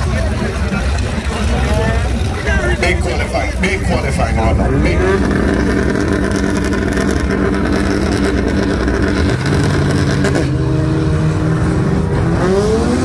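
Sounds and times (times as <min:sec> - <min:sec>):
race car engines running: 0:00.0 - 0:13.0.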